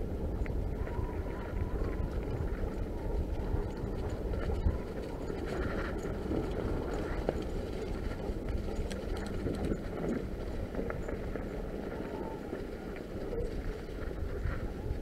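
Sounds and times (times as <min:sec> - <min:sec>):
bike rattles and ticks: 0:00.0 - 0:15.0.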